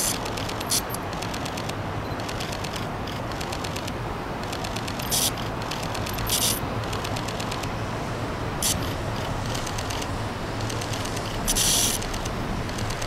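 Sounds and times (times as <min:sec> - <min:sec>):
steam hisses: 0:08.6 - 0:08.9, 0:11.4 - 0:12.0.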